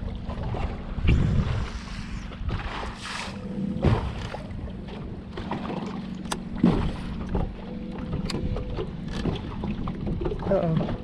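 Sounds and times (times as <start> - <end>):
choppy water washing: 0.0 - 11.0.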